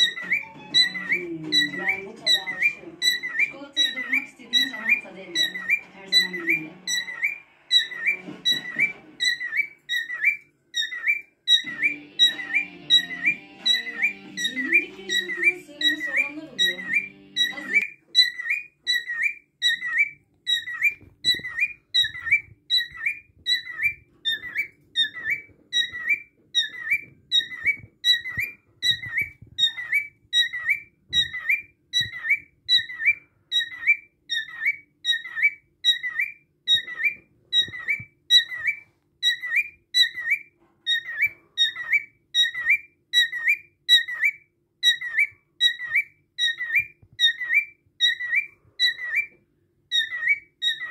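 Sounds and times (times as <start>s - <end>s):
cockatiel whistled chirps: 0.0s - 50.9s.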